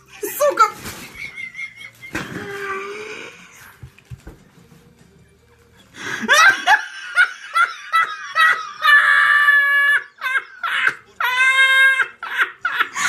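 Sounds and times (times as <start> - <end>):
high-pitched laughter: 6.2 - 13.0.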